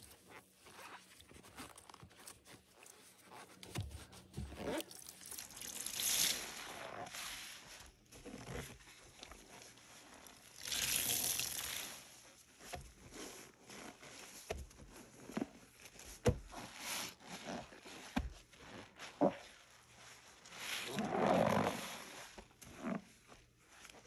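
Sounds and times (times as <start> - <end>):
rubber gloves rubbing: 0.0 - 5.0, 12.5 - 24.0
soapy sponge squishing: 0.0 - 24.0.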